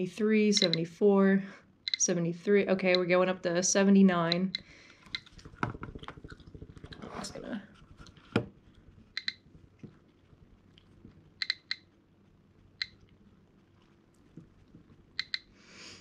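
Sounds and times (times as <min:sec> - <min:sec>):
geiger counter clicking: 0:00.5 - 0:00.9, 0:01.8 - 0:02.2, 0:02.8 - 0:03.2, 0:04.2 - 0:07.0, 0:09.1 - 0:09.5, 0:11.4 - 0:12.0, 0:12.8 - 0:13.2, 0:15.1 - 0:15.6.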